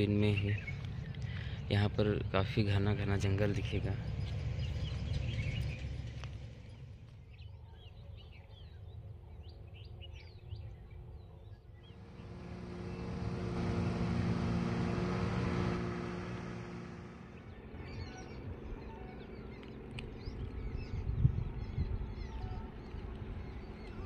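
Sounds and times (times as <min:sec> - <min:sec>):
small birds chirping: 0:00.0 - 0:24.0
low rumble: 0:00.5 - 0:07.6, 0:11.8 - 0:24.0
truck driving by: 0:12.0 - 0:17.6.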